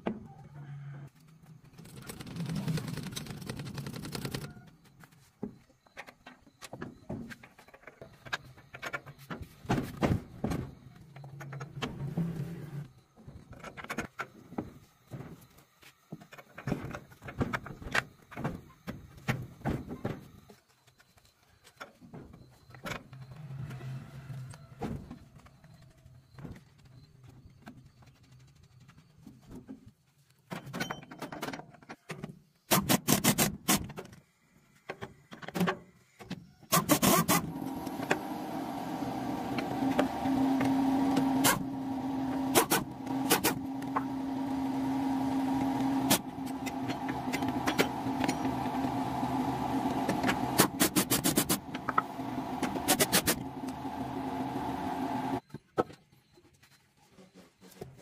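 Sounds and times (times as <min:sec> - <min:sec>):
pneumatic impact wrench rattling: 0:32.7 - 0:33.9, 0:36.7 - 0:38.3, 0:39.9 - 0:44.2, 0:45.5 - 0:49.1, 0:49.7 - 0:53.8
steady mechanical hum: 0:34.2 - 0:55.9.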